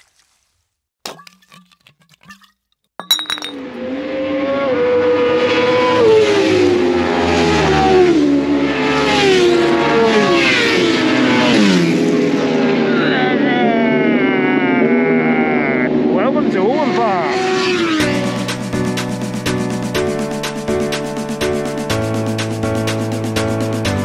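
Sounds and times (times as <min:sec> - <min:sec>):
motorcycles passing at high revs: 0:03.6 - 0:21.8.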